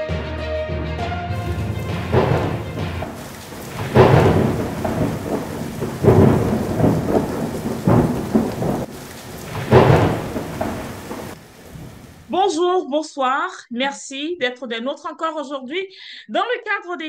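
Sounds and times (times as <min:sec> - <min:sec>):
heavy rain: 0:01.3 - 0:12.3
thunder rolling: 0:01.4 - 0:12.3.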